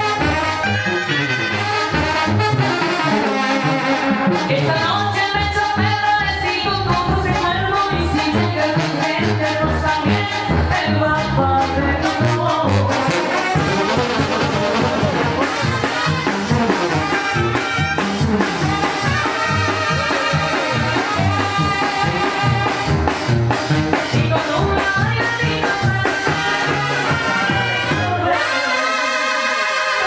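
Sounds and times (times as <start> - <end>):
brass band playing: 0.0 - 30.0
drums: 0.0 - 30.0
tuba bass line: 0.0 - 30.0.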